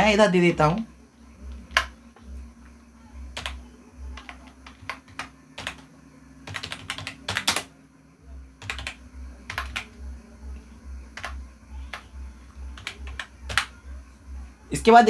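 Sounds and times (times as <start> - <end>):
faint low hum: 0.0 - 15.0
keyboard typing clicks: 1.5 - 2.0, 3.3 - 7.7, 8.6 - 10.0, 11.1 - 12.1, 12.7 - 13.8.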